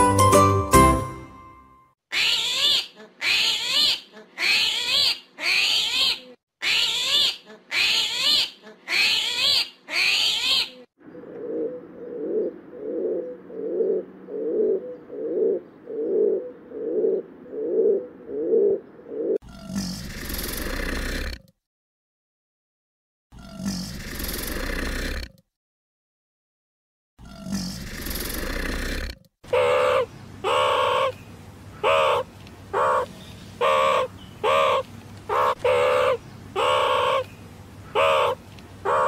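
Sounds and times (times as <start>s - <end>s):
pigeons cooing: 11.0s - 19.4s, 29.5s - 31.2s, 31.8s - 37.3s, 37.9s - 39.0s
warbling animal calls: 27.2s - 39.0s.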